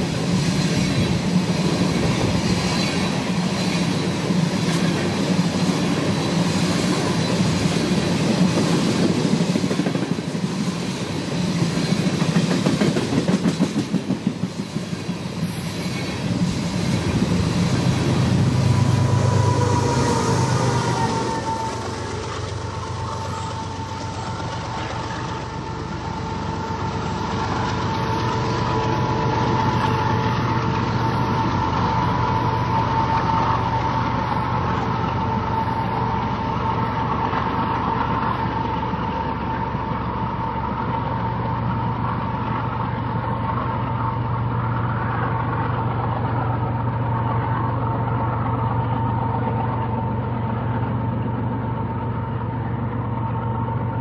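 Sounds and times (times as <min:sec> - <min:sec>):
diesel train engine hum: 0:00.0 - 0:54.0
high whine: 0:16.0 - 0:42.4.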